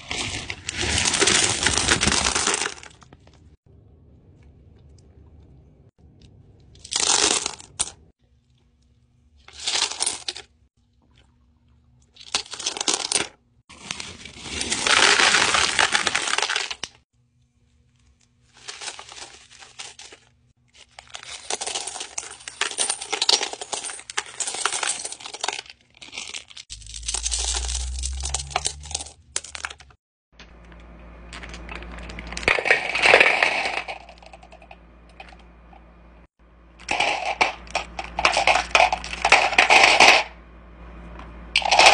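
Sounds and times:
faint low hum: 0:02.7 - 0:09.5
stones rattling and clinking: 0:36.8 - 0:40.2.

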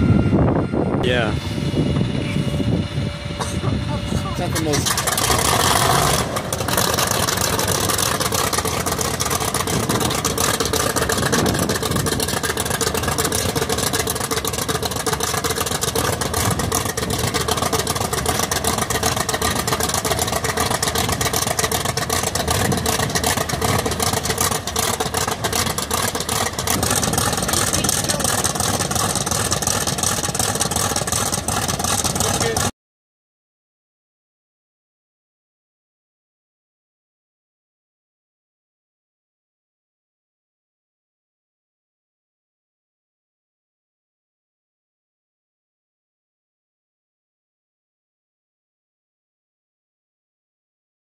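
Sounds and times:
radial aircraft engine idling: 0:00.0 - 0:32.7.

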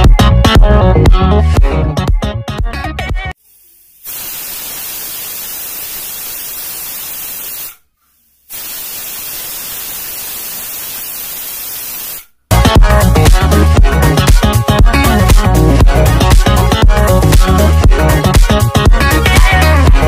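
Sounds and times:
pressure cooker whistling: 0:03.5 - 0:07.8, 0:08.5 - 0:12.3.

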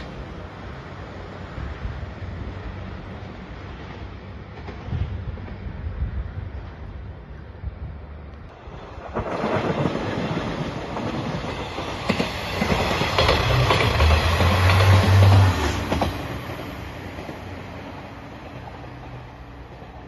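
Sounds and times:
train wheels clattering over rails: 0:08.6 - 0:20.0.

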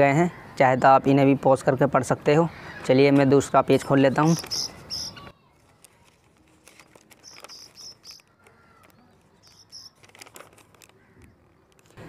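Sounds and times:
paper rustling: 0:04.0 - 0:12.0.

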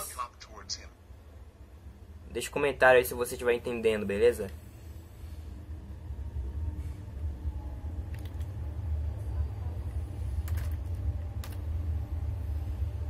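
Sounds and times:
steady low hum: 0:00.0 - 0:13.0
computer keyboard and mouse clicks: 0:08.1 - 0:08.5.

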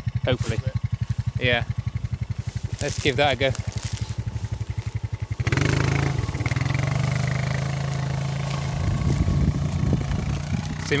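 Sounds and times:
quad bike engine revving: 0:00.0 - 0:11.0
tyre dragging through bracken: 0:02.3 - 0:11.0.

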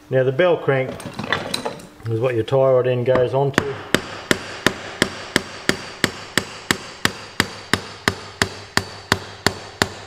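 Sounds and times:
hammer striking metal: 0:03.1 - 0:10.0.

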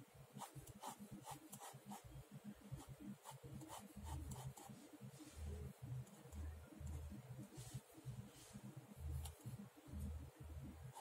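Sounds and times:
pen scratching on paper: 0:00.4 - 0:02.0, 0:02.8 - 0:04.8.

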